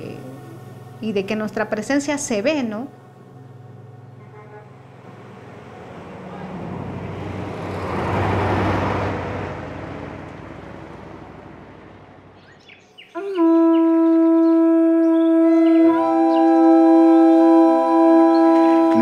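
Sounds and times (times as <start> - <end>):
bus passing on dirt road: 2.8 - 13.1, 15.1 - 19.0
conch shell trumpet note: 4.2 - 4.8, 13.2 - 19.0.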